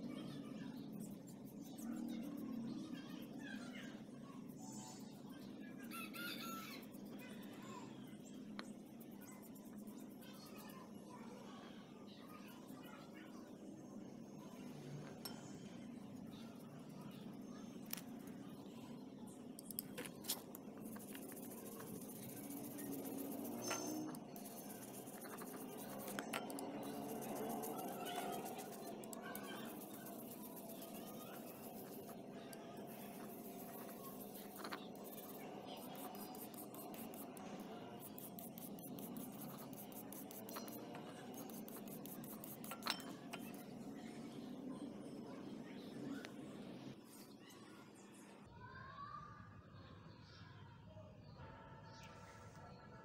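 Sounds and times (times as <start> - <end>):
wooden stick scraping bowl: 20.1 - 32.2.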